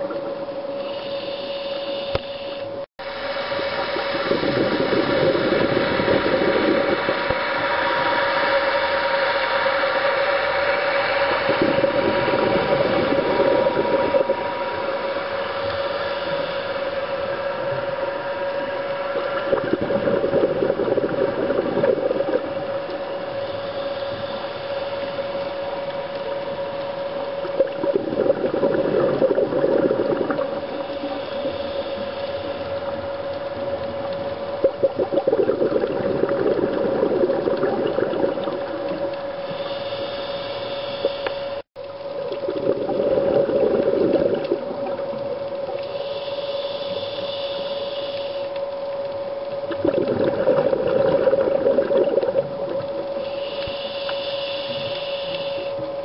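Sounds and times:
exhaled bubbles gurgling underwater: 0:00.0 - 0:56.0
steady underwater hum: 0:00.0 - 0:56.0
regulator inhalation hiss: 0:00.8 - 0:09.9, 0:12.6 - 0:19.6, 0:22.0 - 0:27.3, 0:30.5 - 0:33.0, 0:39.3 - 0:41.6, 0:45.8 - 0:48.6, 0:53.1 - 0:56.0.

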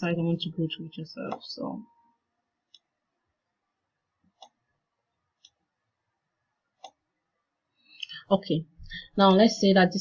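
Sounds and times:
computer mouse clicks: 0:01.2 - 0:01.5, 0:02.7 - 0:02.9, 0:04.2 - 0:04.6, 0:05.3 - 0:05.6, 0:06.8 - 0:07.0.

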